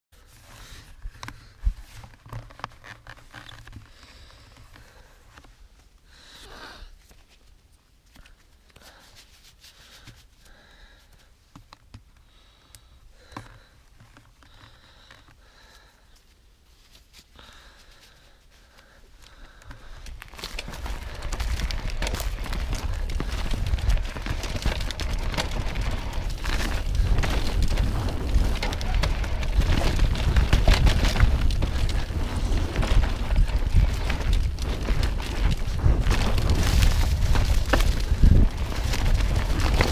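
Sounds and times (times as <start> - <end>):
bike clicks and rattles: 18.7 - 39.9
tyres on dirt: 19.5 - 39.9
wind buffeting microphone: 20.6 - 39.9.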